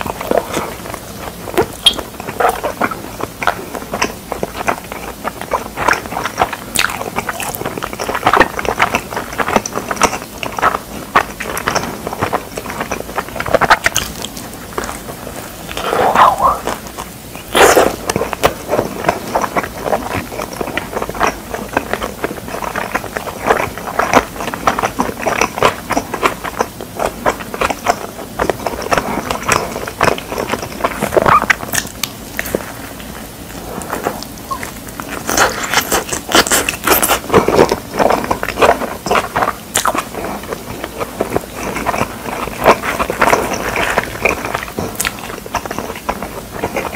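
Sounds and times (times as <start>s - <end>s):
chewing pizza: 0.0s - 46.9s
mouth smacks: 15.7s - 20.5s.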